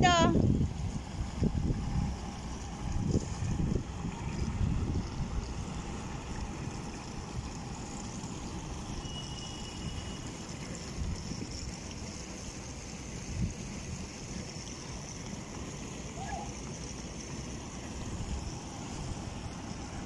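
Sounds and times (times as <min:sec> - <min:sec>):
wind rumble on microphone: 0:00.0 - 0:07.6
constant hiss: 0:00.0 - 0:20.0.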